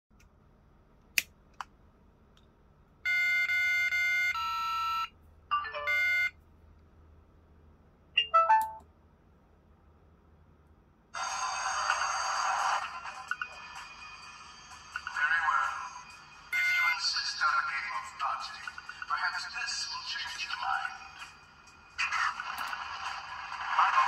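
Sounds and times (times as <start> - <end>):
synthesized beeping tones: 16.5 - 17.1.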